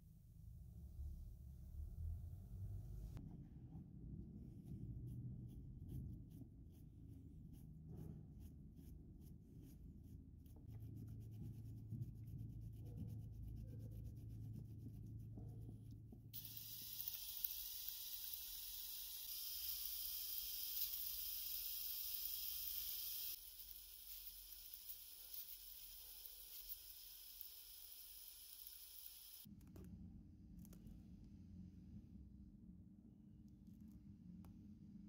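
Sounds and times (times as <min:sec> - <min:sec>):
steady hiss: 0:16.4 - 0:29.5.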